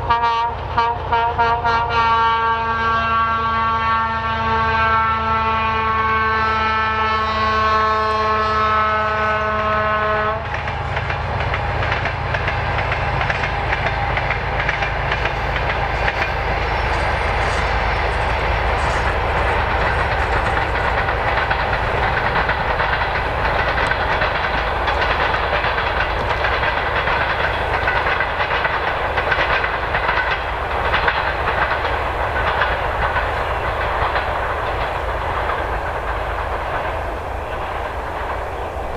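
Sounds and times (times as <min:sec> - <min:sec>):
locomotive horn chord: 0:00.0 - 0:10.5
train wheels clicking over rail joints: 0:08.6 - 0:38.9
diesel engine rumbling: 0:11.0 - 0:38.9.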